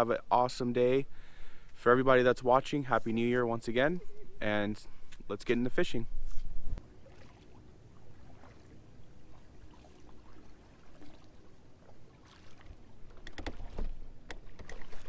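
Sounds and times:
faint water sounds: 0:00.0 - 0:15.0
sharp clicks and knocks: 0:13.1 - 0:14.8.

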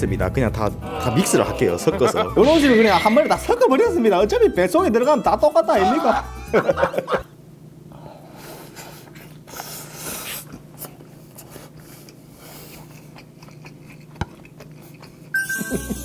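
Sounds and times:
breaths: 0:07.9 - 0:10.5
person chewing: 0:09.1 - 0:15.4.

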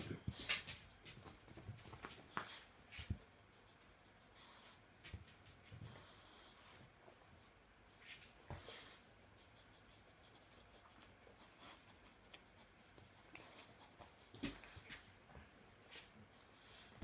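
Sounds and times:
dogs scratching and rustling: 0:00.0 - 0:07.2.

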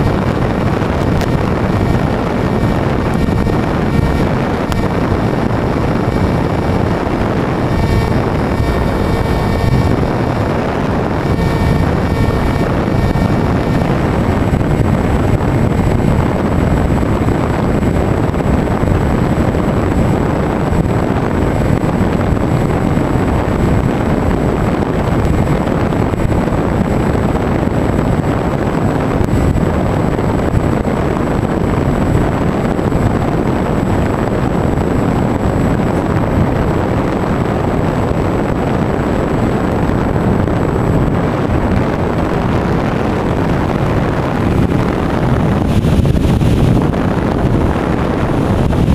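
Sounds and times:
thin high whine: 0:00.0 - 0:27.0
electric motor and propeller drone: 0:00.0 - 0:48.9
wind rushing over microphone: 0:00.0 - 0:48.9.

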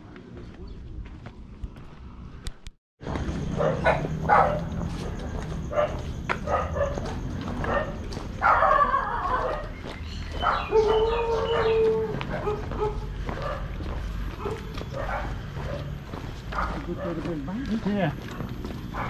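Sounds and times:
dog barking: 0:03.5 - 0:09.7, 0:10.4 - 0:17.4
dog whining: 0:10.4 - 0:13.0.

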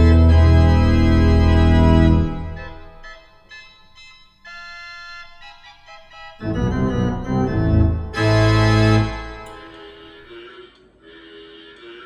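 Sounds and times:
organ chords: 0:00.0 - 0:12.0.

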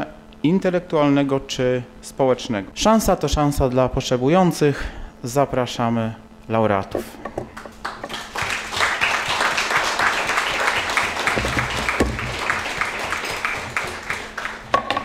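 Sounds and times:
audience applauding: 0:07.6 - 0:14.7.

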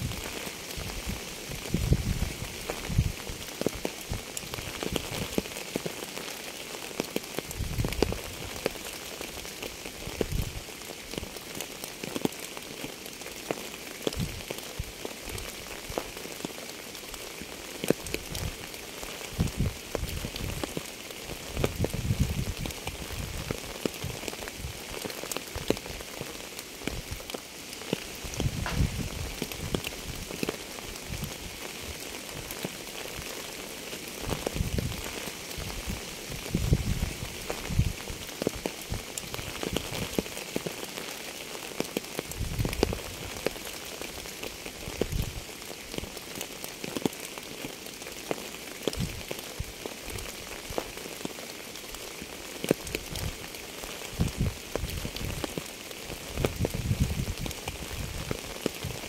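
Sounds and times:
steady rain hissing: 0:00.0 - 0:59.0
raindrops ticking: 0:00.1 - 0:59.0
low thuds: 0:28.5 - 0:29.4.

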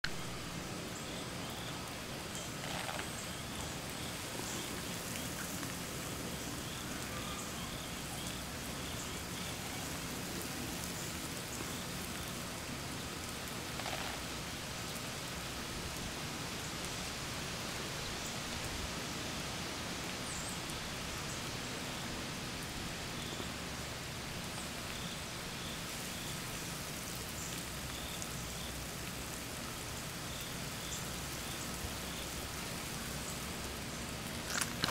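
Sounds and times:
lawn sprinkler spraying water: 0:00.0 - 0:34.9.

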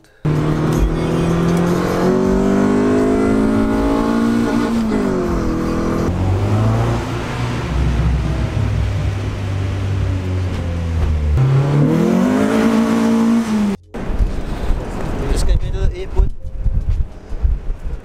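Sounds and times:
car engine accelerating: 0:00.2 - 0:15.3
low steady engine note: 0:07.2 - 0:11.4.

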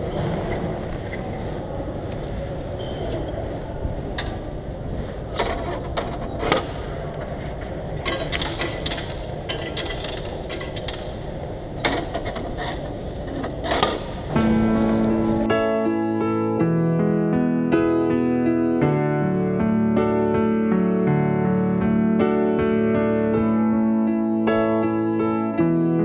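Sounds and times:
ticket machine clicks and clunks: 0:05.3 - 0:15.5
clatter into collection tray: 0:08.0 - 0:14.3
low hum: 0:12.8 - 0:17.5.

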